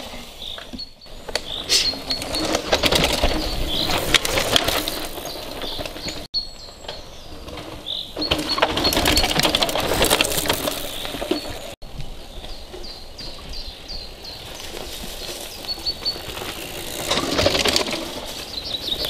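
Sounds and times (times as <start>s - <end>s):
bike tyres rolling over dirt: 0.0s - 19.0s
birds chirping: 0.0s - 19.0s
bike chains rattling: 1.2s - 6.3s, 7.0s - 11.8s, 14.8s - 19.0s.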